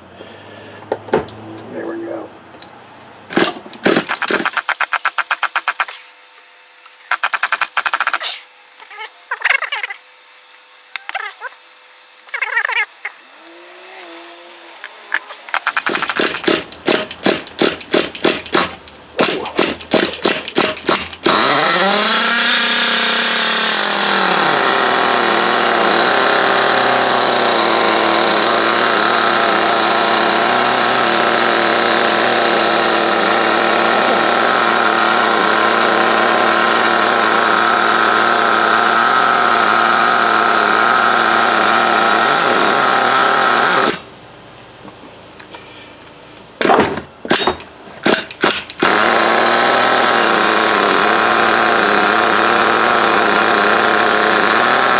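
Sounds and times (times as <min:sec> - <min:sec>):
engine cranking pulses: 0:03.3 - 0:05.9, 0:07.0 - 0:08.3, 0:13.4 - 0:44.1, 0:48.0 - 0:54.9
small engine running loud: 0:03.3 - 0:44.2, 0:48.1 - 0:54.9.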